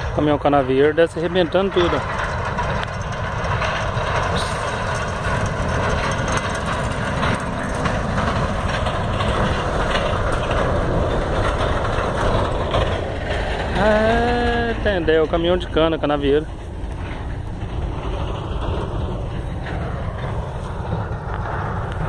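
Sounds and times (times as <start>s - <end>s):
diesel truck passing by: 0.0s - 22.0s.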